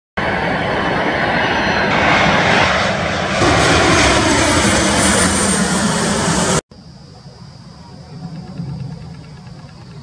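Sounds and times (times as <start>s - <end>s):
jet engines roaring: 0.2s - 6.6s.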